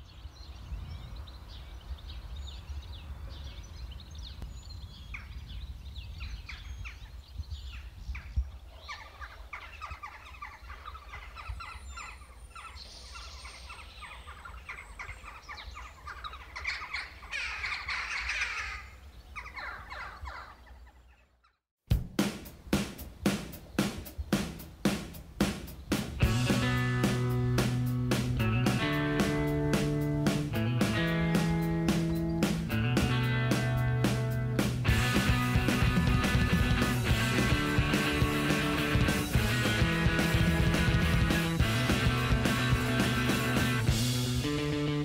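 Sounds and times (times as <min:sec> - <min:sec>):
flock of birds chirping: 0:00.0 - 0:21.6, 0:28.7 - 0:44.0.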